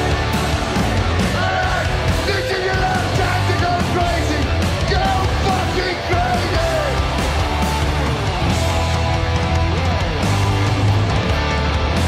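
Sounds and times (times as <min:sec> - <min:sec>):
heavy metal band playing: 0:00.0 - 0:12.0
man singing: 0:01.3 - 0:07.0.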